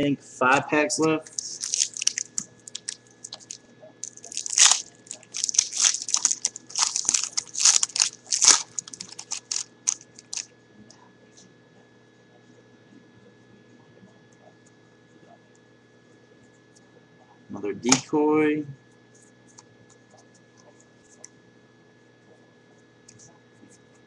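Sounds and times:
card pack wrapper tearing and crinkling: 1.3s - 10.4s.

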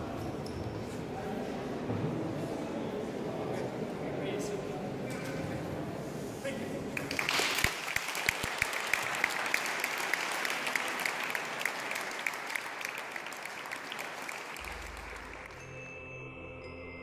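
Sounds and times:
audience applauding: 7.0s - 15.7s.

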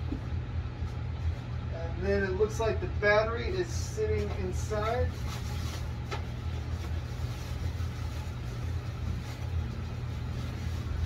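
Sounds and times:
low machine hum: 0.0s - 11.0s
cardboard and styrofoam handled: 4.2s - 11.0s.

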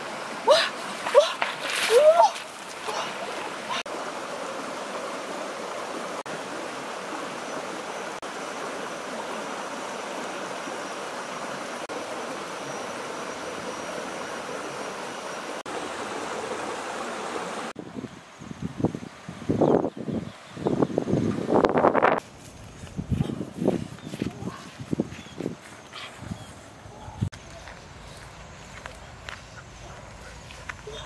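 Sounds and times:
stream water rushing: 0.0s - 18.0s.

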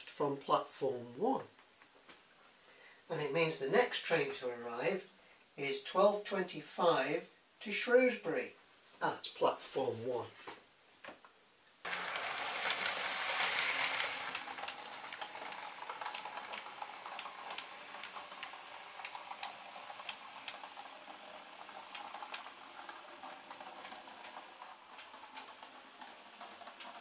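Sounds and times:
model train rolling hiss: 11.9s - 26.9s
wheels clicking on rails: 11.9s - 27.0s.

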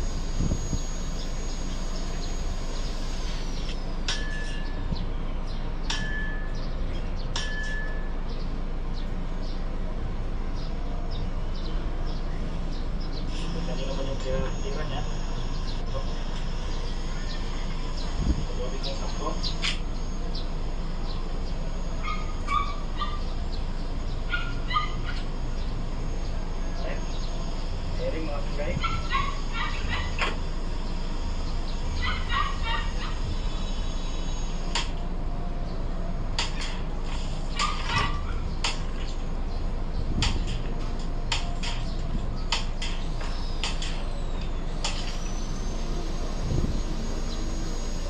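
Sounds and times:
steady low hum: 0.0s - 48.0s
glass bottle ringing clink: 7.4s - 8.1s
dog yelping: 22.0s - 23.4s, 24.2s - 25.3s, 28.8s - 30.3s, 32.0s - 33.4s, 37.5s - 38.6s.

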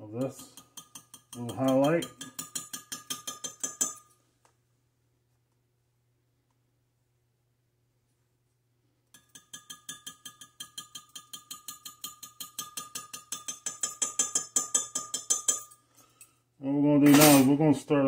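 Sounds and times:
utensil stirring liquid in cup: 0.2s - 4.0s, 9.1s - 15.7s.

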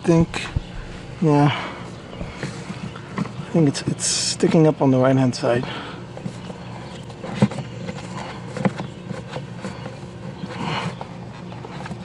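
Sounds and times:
rustling scrape: 6.1s - 12.0s.

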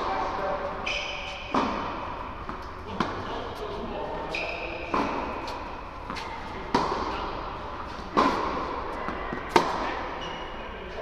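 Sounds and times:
tennis ball struck by racket: 0.8s - 3.3s, 4.8s - 10.0s.

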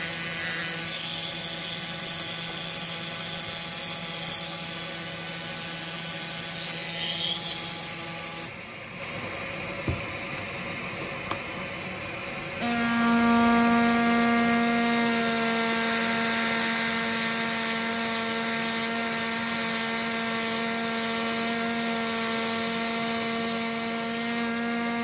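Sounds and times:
air scribe buzzing: 0.0s - 8.6s, 12.6s - 25.0s
knock: 9.8s - 10.1s.

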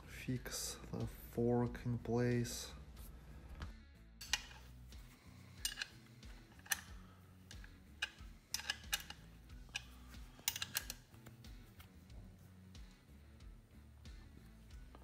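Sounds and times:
wrench clicking on bolt: 4.2s - 4.7s, 5.6s - 11.1s.

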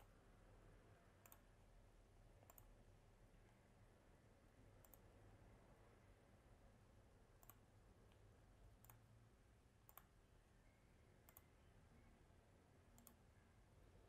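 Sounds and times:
faint computer mouse clicks: 1.2s - 1.5s, 2.4s - 2.7s, 4.8s - 5.1s, 7.4s - 8.2s, 8.8s - 9.0s, 9.9s - 10.1s, 11.3s - 11.5s, 13.0s - 13.2s.

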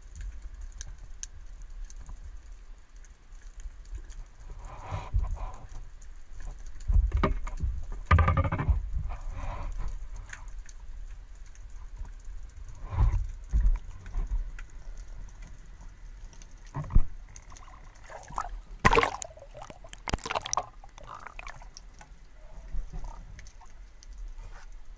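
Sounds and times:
muffled underwater rumble: 4.3s - 24.9s
gurgling bubbly bursts: 17.4s - 21.8s.

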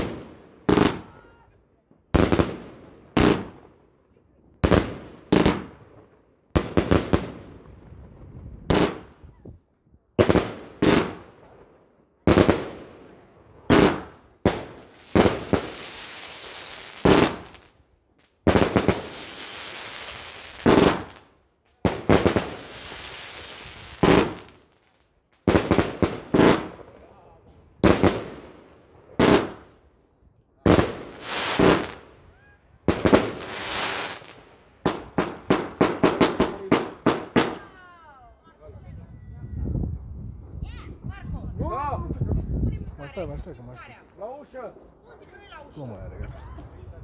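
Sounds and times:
fireworks bangs: 0.0s - 1.4s, 2.1s - 3.7s, 4.6s - 9.4s, 10.2s - 11.6s, 12.2s - 27.0s, 27.8s - 29.7s, 30.6s - 37.9s.

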